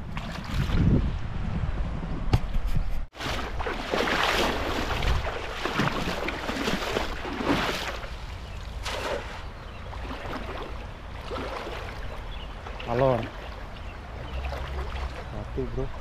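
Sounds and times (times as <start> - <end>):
wind rumble on microphone: 0.0 - 3.7, 4.4 - 7.4
river water rushing and splashing: 3.2 - 16.0.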